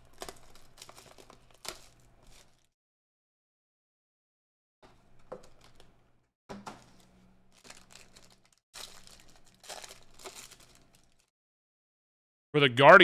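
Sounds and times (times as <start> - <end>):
foil pack crinkling and tearing: 0.0 - 2.8, 6.8 - 11.3.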